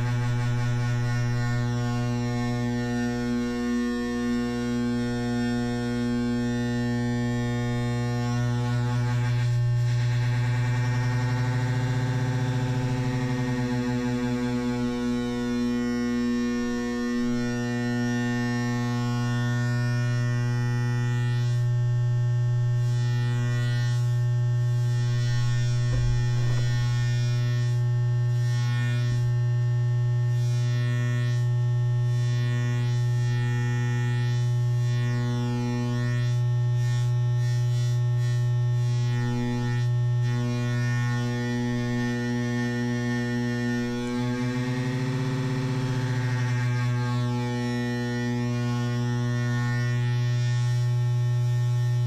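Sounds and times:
synthesizer drone: 0:00.0 - 0:21.3, 0:40.4 - 0:50.3.

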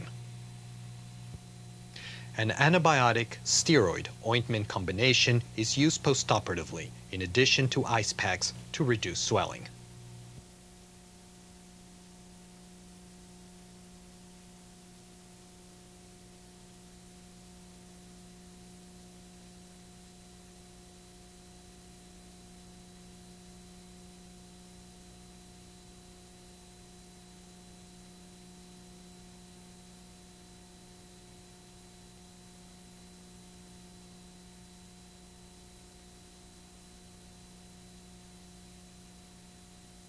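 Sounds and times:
constant hiss: 0:00.0 - 0:40.0
faint electrical hum: 0:00.0 - 0:40.0.

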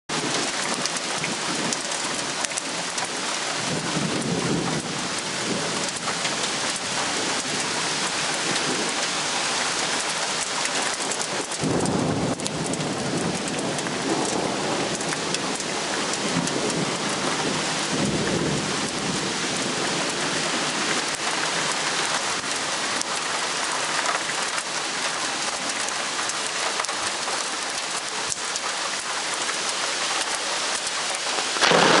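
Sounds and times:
steady rain falling: 0:00.1 - 0:32.0
thunder rumbling: 0:11.5 - 0:15.6, 0:31.6 - 0:32.0.

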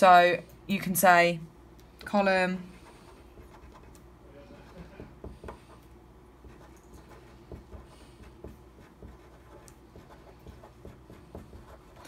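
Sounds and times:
pen scratching on paper: 0:02.7 - 0:03.9, 0:06.4 - 0:12.0.

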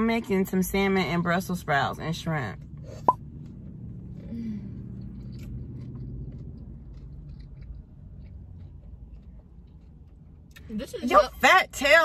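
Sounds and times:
person chewing: 0:03.0 - 0:10.7.

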